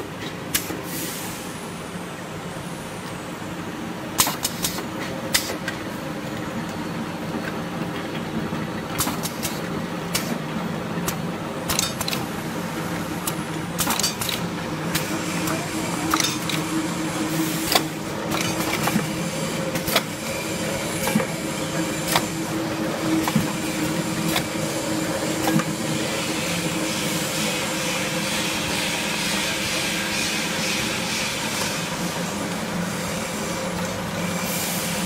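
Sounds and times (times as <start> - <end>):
machine whirring: 4.1 - 35.0
filling machine humming: 10.8 - 35.0
machine clacking: 11.0 - 12.3, 13.2 - 16.7, 17.3 - 24.7.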